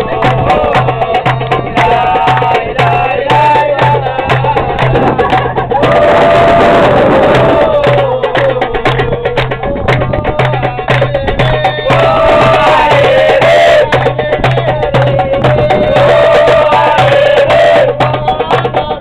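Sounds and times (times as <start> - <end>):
loud dance music: 3.4 - 8.1.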